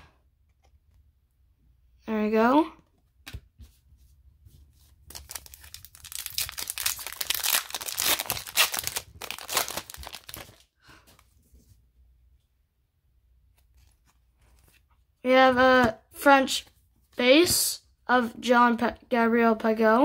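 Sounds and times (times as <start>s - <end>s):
wrapper tearing and crinkling: 5.1s - 10.7s.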